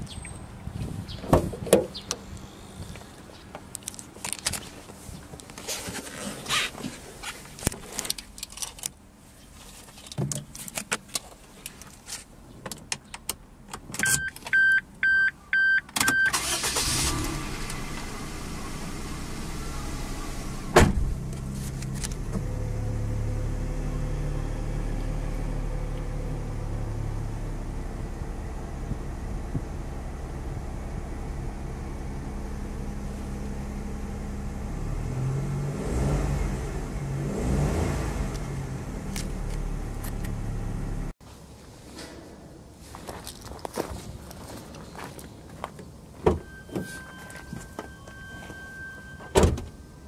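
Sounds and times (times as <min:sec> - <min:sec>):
car engine starting and idling: 0:13.3 - 0:41.2
car chime beeps: 0:14.0 - 0:16.6, 0:46.4 - 0:50.0.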